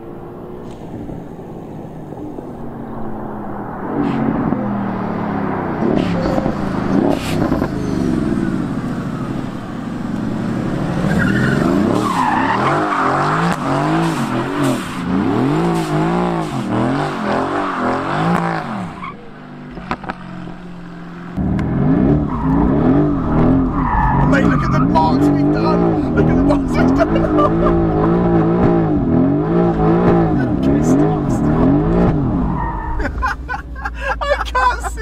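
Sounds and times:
car engine revving: 0.0s - 35.0s
tyres squealing: 10.9s - 13.5s, 22.3s - 28.5s.

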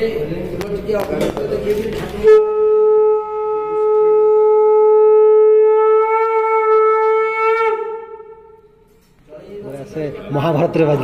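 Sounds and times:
conch shell blown: 2.2s - 8.9s.

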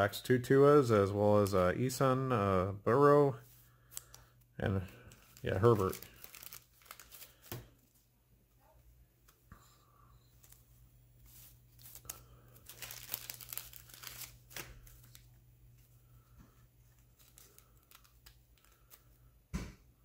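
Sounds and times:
plastic wrapper crackling: 3.9s - 7.7s, 11.7s - 15.4s, 17.0s - 19.1s.

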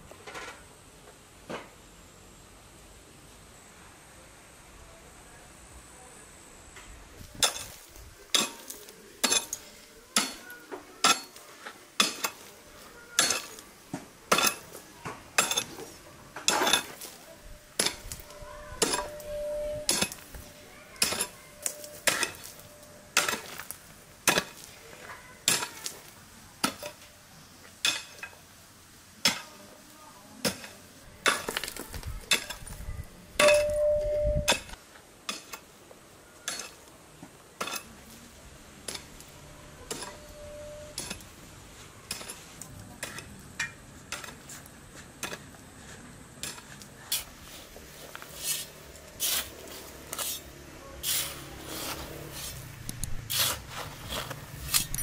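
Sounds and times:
short metallic ring: 17.8s - 20.2s, 33.4s - 34.7s.

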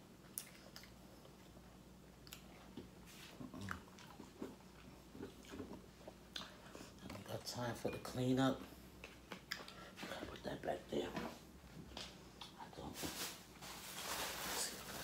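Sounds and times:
biting and chewing food: 0.2s - 7.3s.

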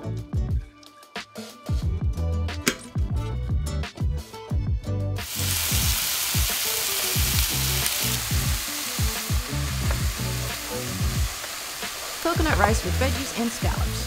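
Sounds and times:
food sizzling in a pan: 5.2s - 14.0s
music beat: 5.2s - 14.0s.

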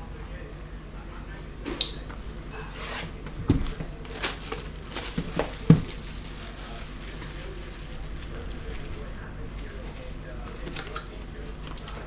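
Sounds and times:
knife tearing plastic wrap: 2.8s - 12.0s.

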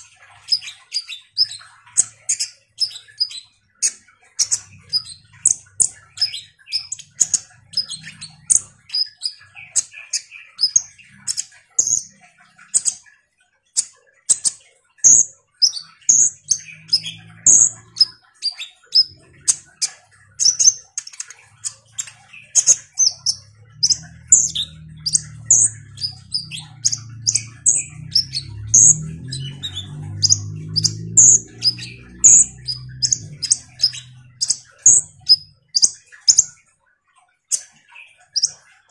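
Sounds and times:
sunbird chirping and twittering: 0.0s - 36.8s, 37.4s - 38.9s
low hum: 23.2s - 35.6s.

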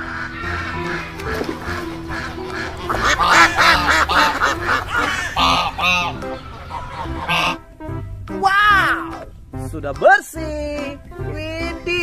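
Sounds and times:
ducks quacking: 0.0s - 7.7s.

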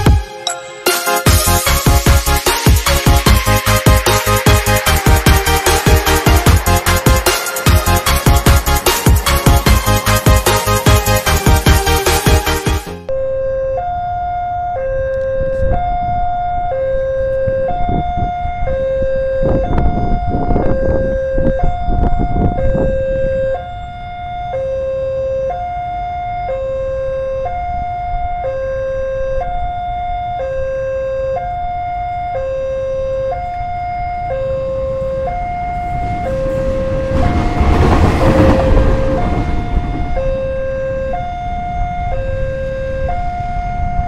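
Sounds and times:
level crossing alarm two-tone: 0.4s - 12.0s, 13.1s - 44.0s
loud rushing noise: 35.7s - 41.1s.

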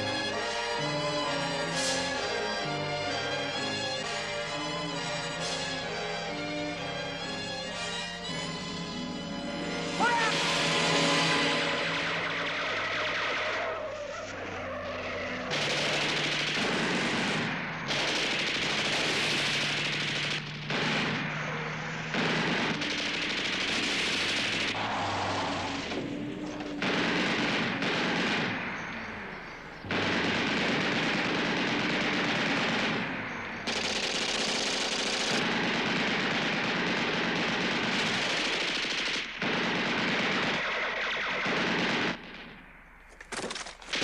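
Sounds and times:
vehicle engines running: 0.0s - 38.7s
gunshots: 9.6s - 44.0s
machine-gun fire: 15.4s - 26.0s, 26.6s - 29.0s, 29.8s - 42.6s.

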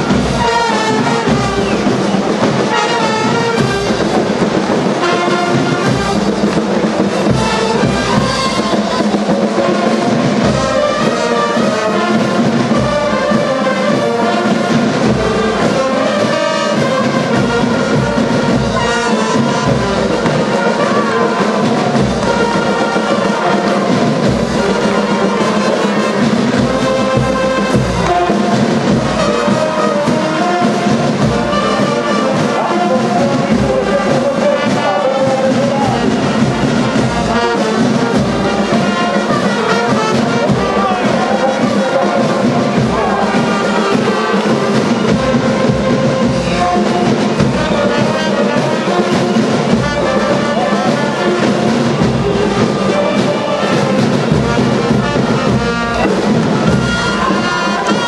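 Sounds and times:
brass marching band playing: 0.0s - 58.0s
steady drumbeat: 0.0s - 58.0s.

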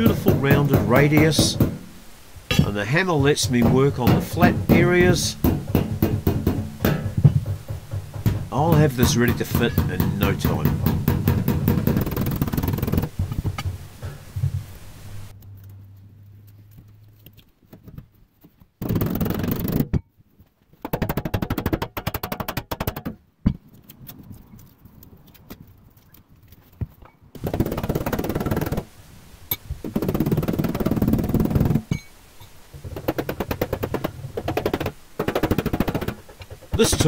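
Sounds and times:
rapid metal tapping: 0.0s - 14.8s, 20.8s - 23.2s, 27.4s - 28.9s, 29.5s - 32.0s, 32.8s - 37.0s.

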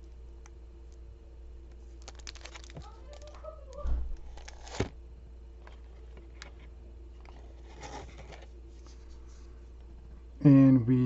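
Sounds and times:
low steady hum: 0.0s - 11.0s
plastic wrappers rustling: 1.8s - 4.9s
wrapper crinkling: 1.8s - 4.9s.

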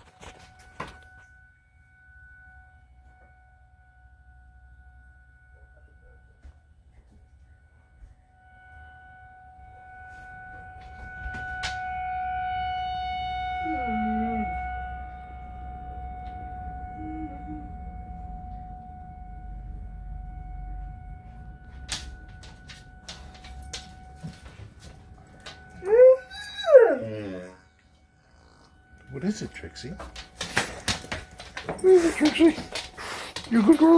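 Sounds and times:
warning siren steady tone: 0.0s - 33.9s
dog howling: 13.6s - 14.7s, 25.6s - 29.0s
dog whining: 25.8s - 28.8s.

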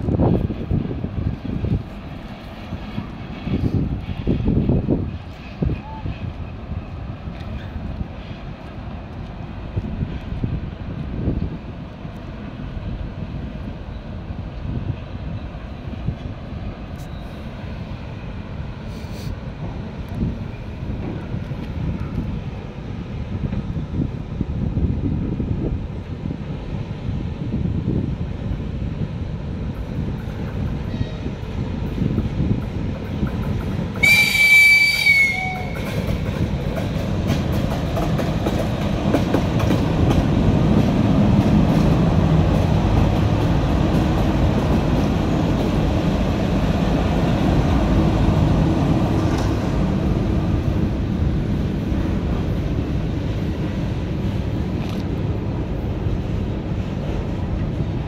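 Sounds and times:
train rumbling past: 0.0s - 58.0s
locomotive horn blast: 34.0s - 35.8s.

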